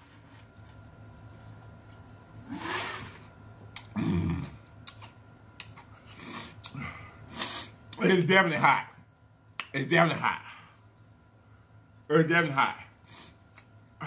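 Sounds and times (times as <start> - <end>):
man humming low: 3.8 - 4.7.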